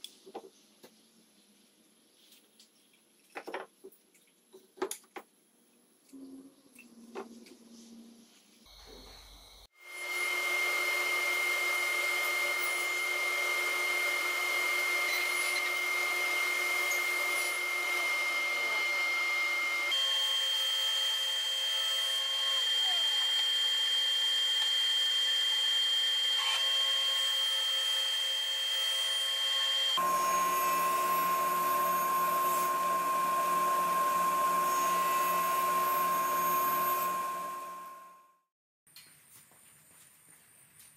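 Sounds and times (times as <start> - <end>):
table saw whining: 9.8 - 38.3.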